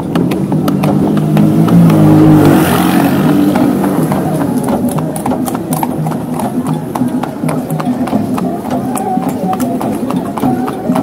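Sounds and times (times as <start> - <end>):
horse hooves clip-clopping on road: 0.0 - 11.0
vehicle engine revving past: 0.2 - 6.5.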